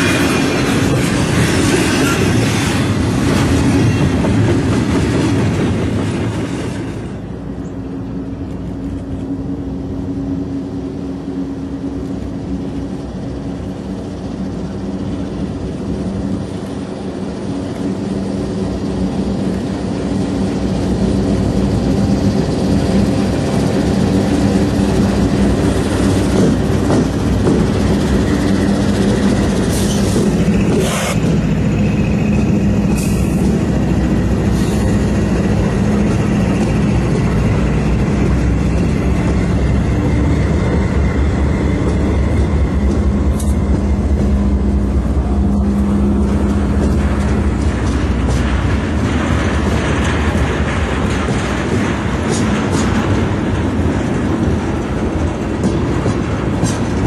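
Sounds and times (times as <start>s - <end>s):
diesel locomotive engine drone: 0.0s - 57.0s
container cars clacking over rail joints: 12.1s - 57.0s.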